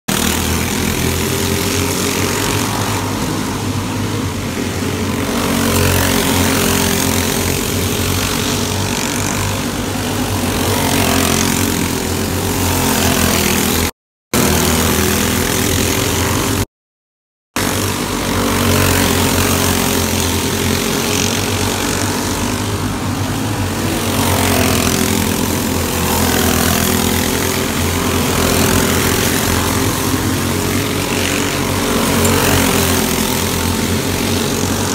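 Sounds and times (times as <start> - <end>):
kart engines at high revs: 0.1 - 16.7, 17.6 - 34.9.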